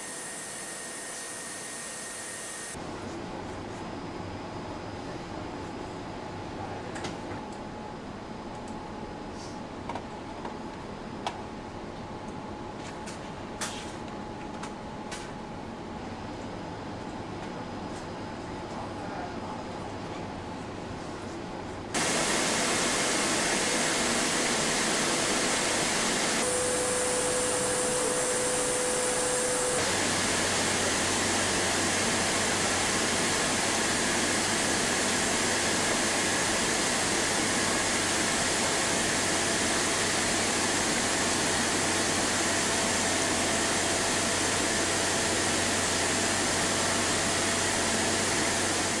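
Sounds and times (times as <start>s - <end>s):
loud rushing machine noise: 22.0s - 49.0s.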